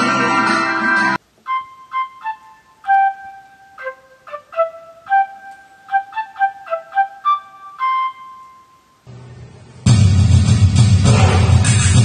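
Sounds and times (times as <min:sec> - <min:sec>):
flute-like melody: 0:00.0 - 0:09.1.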